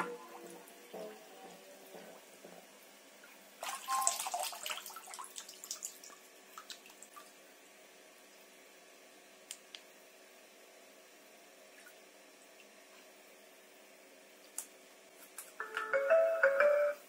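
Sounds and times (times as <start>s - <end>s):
water dripping: 3.2s - 7.4s.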